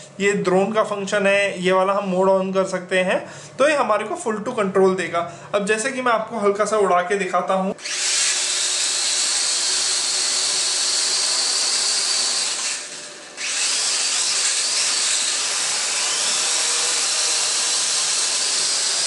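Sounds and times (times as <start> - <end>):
quadcopter motors buzzing whine: 7.8 - 19.0.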